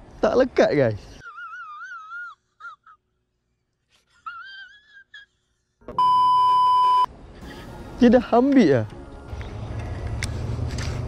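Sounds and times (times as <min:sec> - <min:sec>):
test-tone beep: 0:06.0 - 0:07.1.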